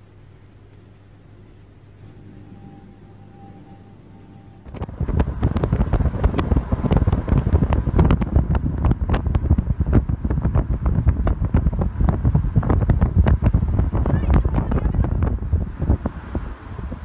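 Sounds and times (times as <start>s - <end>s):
road rumble: 4.7s - 17.0s
wind buffeting microphone: 4.7s - 17.0s.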